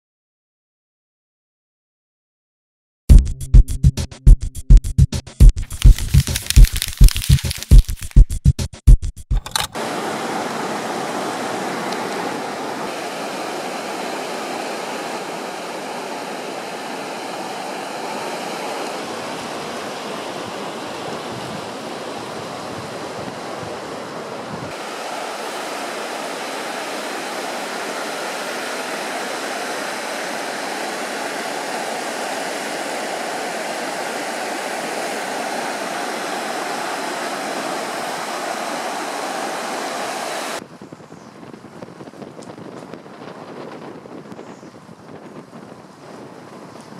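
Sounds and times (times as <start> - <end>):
river rushing over stones: 9.8 - 40.6.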